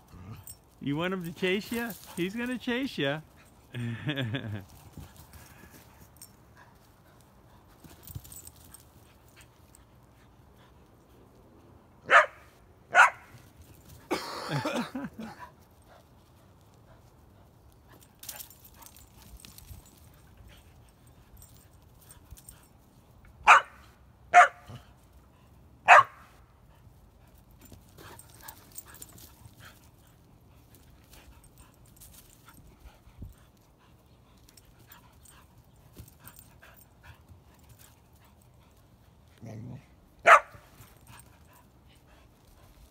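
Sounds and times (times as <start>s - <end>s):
dog barking: 12.1s - 13.3s, 23.4s - 24.8s, 25.9s - 26.3s, 40.2s - 40.6s.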